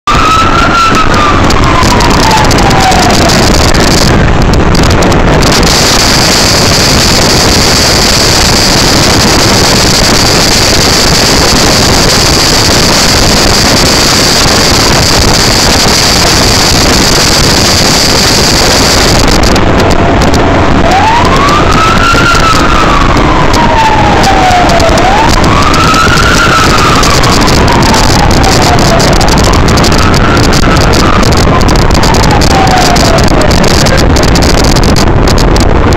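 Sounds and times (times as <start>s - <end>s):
wind and road noise: 0.0s - 35.9s
high whine: 0.1s - 35.9s
siren wailing: 0.1s - 35.9s.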